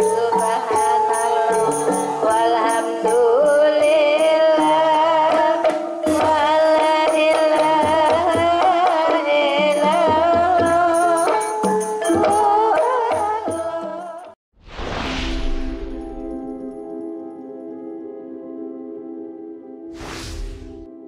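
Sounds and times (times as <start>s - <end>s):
hand drums: 5.0s - 14.3s.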